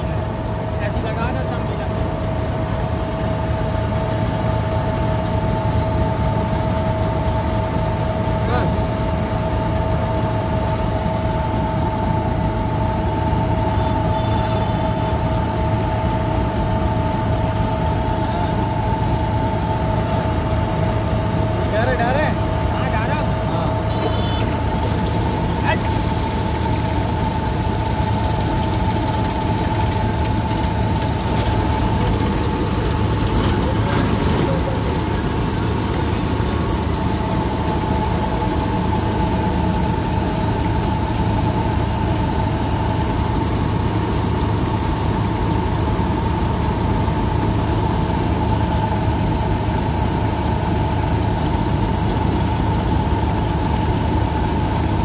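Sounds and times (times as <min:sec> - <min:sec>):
combine harvester running: 0:00.0 - 0:55.0
auger whine: 0:10.7 - 0:21.5, 0:23.2 - 0:45.3.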